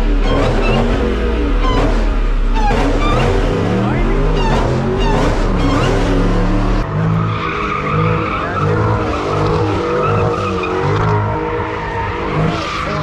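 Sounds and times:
car engine revving: 0:00.0 - 0:13.0
tire squeal: 0:00.0 - 0:13.0.

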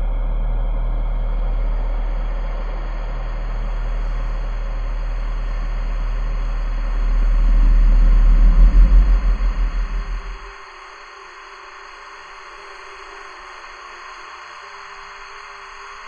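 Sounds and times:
deep electronic rumbling drone: 0:00.0 - 0:11.0.

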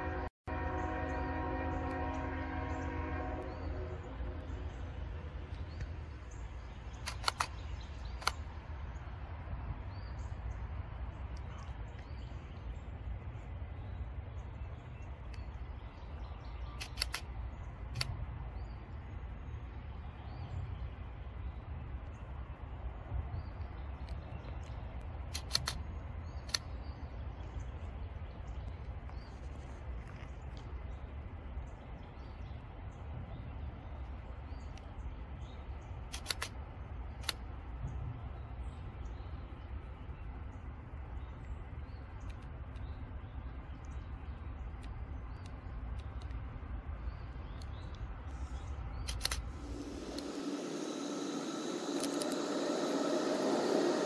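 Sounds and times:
train horn: 0:00.0 - 0:04.5
sharp clicks: 0:06.9 - 0:08.5, 0:16.8 - 0:18.2, 0:24.0 - 0:26.8, 0:36.0 - 0:36.6, 0:37.2 - 0:37.4, 0:44.7 - 0:46.4, 0:48.9 - 0:54.0
locomotive rumble: 0:49.3 - 0:54.0.

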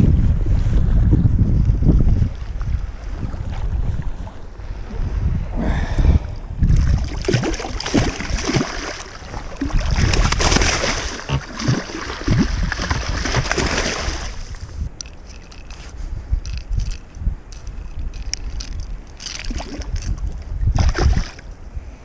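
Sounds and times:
wind buffeting microphone: 0:00.0 - 0:22.0
water splashing against rocks: 0:06.6 - 0:15.8, 0:17.9 - 0:21.5
fish thrashing in water: 0:06.7 - 0:14.5, 0:20.8 - 0:21.4.

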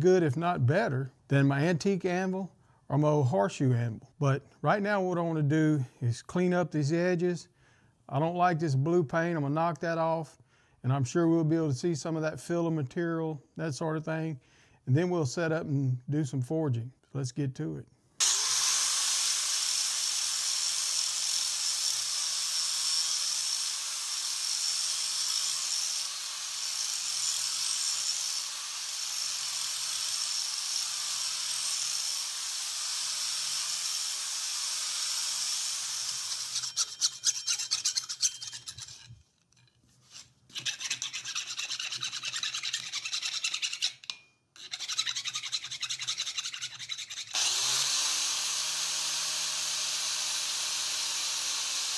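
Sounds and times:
angle grinder grinding metal: 0:18.2 - 0:51.9.

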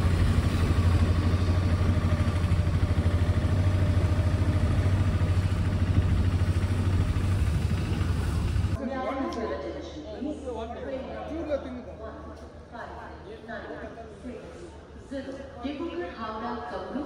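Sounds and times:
small engine chugging: 0:00.0 - 0:08.8.

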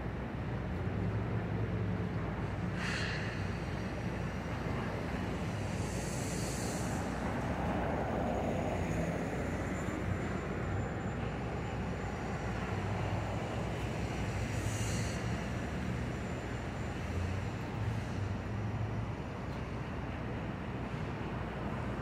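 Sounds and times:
street traffic rumble: 0:00.0 - 0:22.0
brief hiss: 0:02.8 - 0:03.6.

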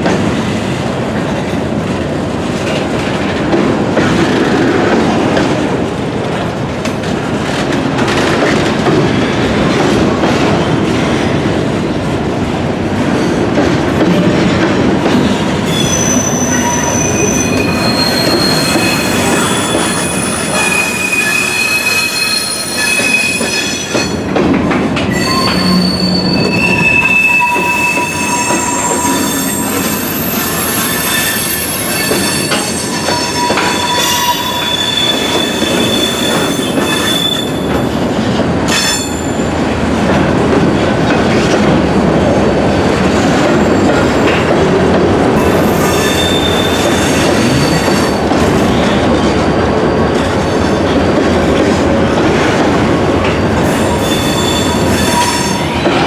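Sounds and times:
train wheels rumbling on rails: 0:00.0 - 0:56.0
wheels squealing: 0:15.7 - 0:24.1, 0:25.1 - 0:37.7.

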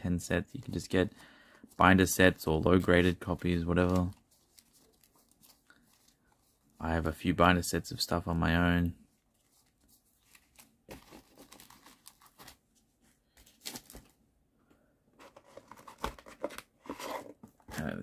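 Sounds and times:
trading cards rustling: 0:00.5 - 0:07.4, 0:09.1 - 0:14.2.

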